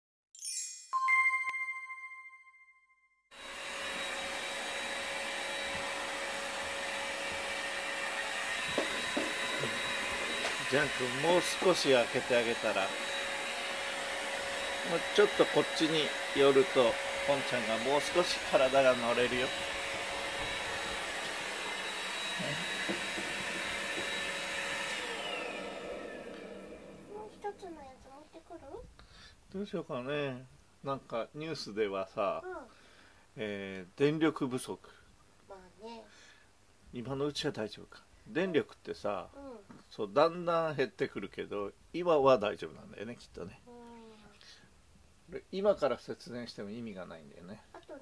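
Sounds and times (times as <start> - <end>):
bell-like ring: 0.4 - 3.1
chime with high tinkles: 0.4 - 3.2
electric motor whir: 3.4 - 27.6.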